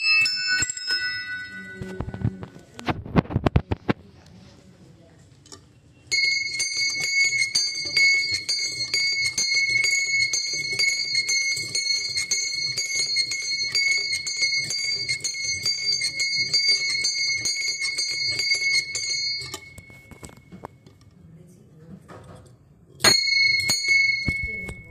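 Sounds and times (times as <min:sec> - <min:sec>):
small brass bell ringing: 0:00.0 - 0:02.4, 0:06.1 - 0:20.7, 0:23.0 - 0:24.9.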